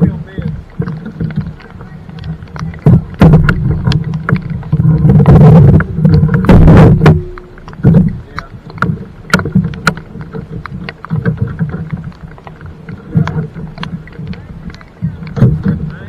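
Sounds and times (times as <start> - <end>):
low rumbling: 0.0 - 16.0
raindrops tapping: 0.0 - 16.0.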